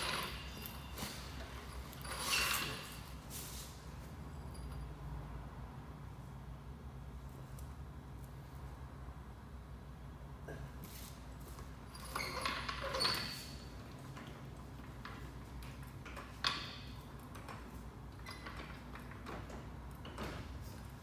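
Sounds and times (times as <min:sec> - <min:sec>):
metal clanks of trolley jack: 0:00.0 - 0:03.1, 0:14.2 - 0:20.6.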